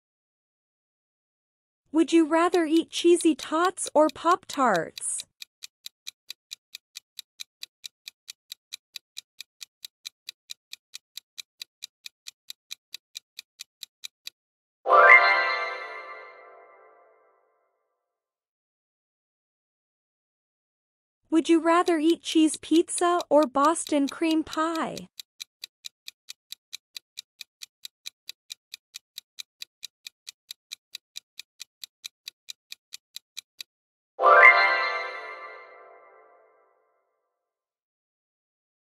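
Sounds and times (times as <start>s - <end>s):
fast clock ticks: 2.0s - 14.4s, 21.4s - 33.7s.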